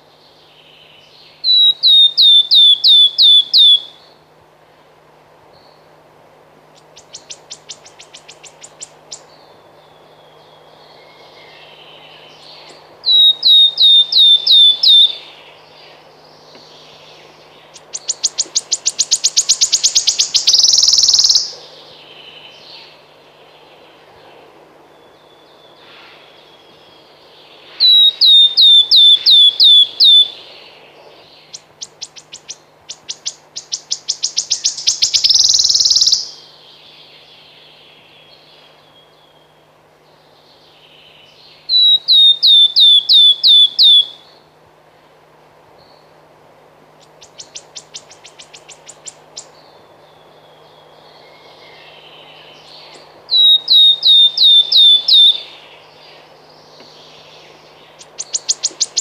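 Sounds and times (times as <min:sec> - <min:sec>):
bird ticking trill: 0:01.4 - 0:04.1, 0:06.8 - 0:09.5, 0:12.4 - 0:15.4, 0:17.6 - 0:21.6, 0:27.9 - 0:30.4, 0:31.4 - 0:36.4, 0:41.6 - 0:44.4, 0:47.0 - 0:49.6, 0:52.6 - 0:59.0
bird piping notes: 0:01.4 - 0:04.2, 0:06.8 - 0:16.0, 0:16.6 - 0:21.6, 0:27.7 - 0:30.5, 0:31.4 - 0:36.5, 0:41.2 - 0:44.4, 0:47.0 - 0:59.0.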